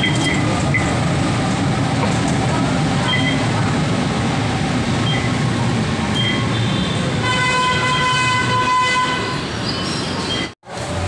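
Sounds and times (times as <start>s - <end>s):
short electronic beep: 3.0s - 3.5s, 5.0s - 5.4s, 6.2s - 6.6s.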